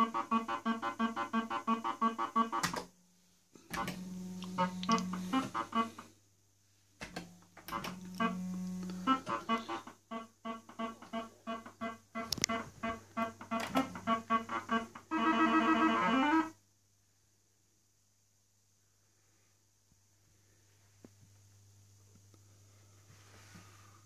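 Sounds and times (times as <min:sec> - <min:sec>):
electronic held tone: 0:03.8 - 0:06.1, 0:07.7 - 0:16.6.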